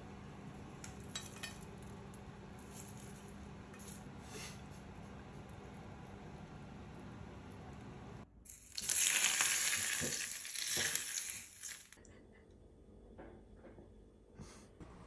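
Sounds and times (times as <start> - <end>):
hot oil sizzling loudly: 8.5 - 12.0.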